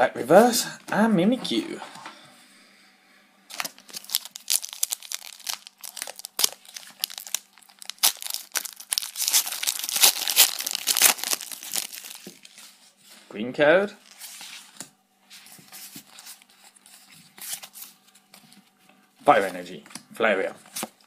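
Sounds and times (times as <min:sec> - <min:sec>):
foil wrapper crinkling and tearing: 0:03.5 - 0:12.6.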